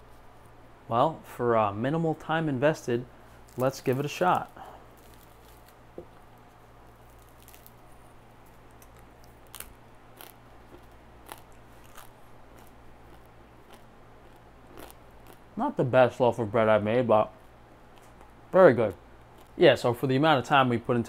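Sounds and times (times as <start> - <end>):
crunchy bread chewing: 3.4 - 15.5, 17.9 - 19.6.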